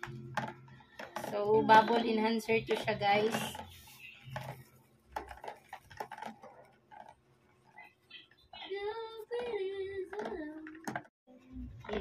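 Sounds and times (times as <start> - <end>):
plastic stick knocking in basin: 0.0 - 7.2, 9.2 - 11.1.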